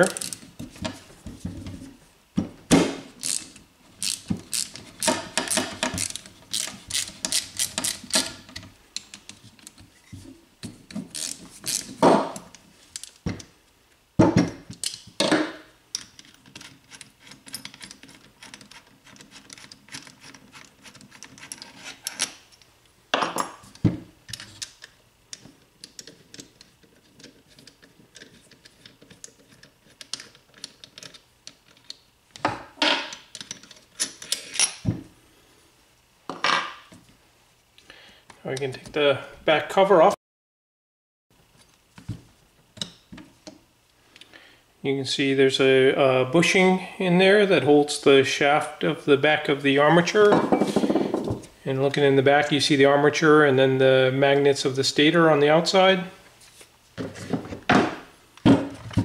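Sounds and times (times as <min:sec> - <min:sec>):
socket ratchet clicking: 0:03.2 - 0:08.4.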